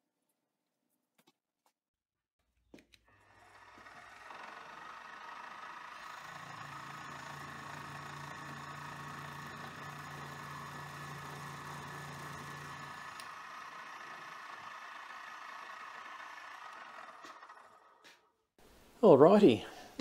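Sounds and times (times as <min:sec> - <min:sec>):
end mill drilling into metal: 0:03.1 - 0:18.2
milling machine spindle motor: 0:03.1 - 0:18.2.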